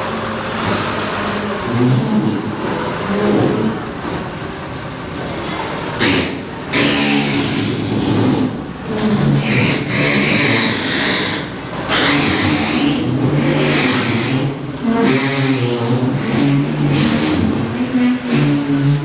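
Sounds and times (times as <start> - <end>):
forklift engine revving: 0.0 - 19.0.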